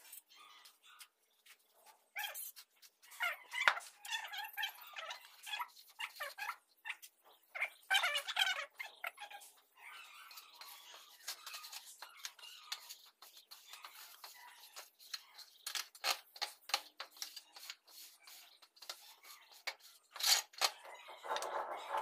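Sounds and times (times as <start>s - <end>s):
straight-edge scraping mortar: 10.5s - 22.0s.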